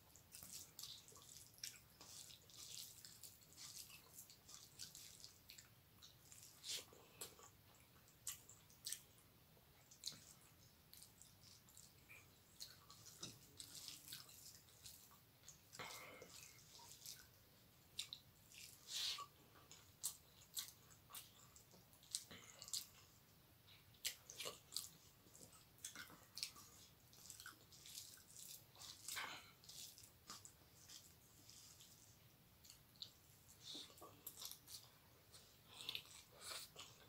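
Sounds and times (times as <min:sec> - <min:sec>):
fingers squishing rice: 0:00.0 - 0:09.2, 0:09.8 - 0:23.0, 0:23.7 - 0:37.0
wet chewing: 0:00.0 - 0:37.0.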